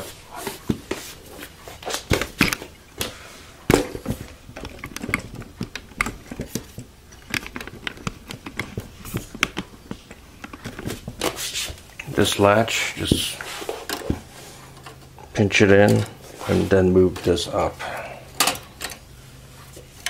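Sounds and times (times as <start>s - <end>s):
handling clicks taps and knocks: 3.7s - 12.2s.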